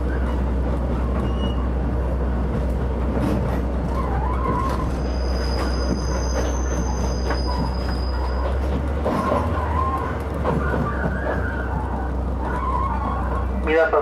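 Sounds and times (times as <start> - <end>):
rail clicks: 0.0 - 14.0
train rumbling on rails: 0.0 - 14.0
high wheel squeal: 1.1 - 1.8, 3.9 - 13.6.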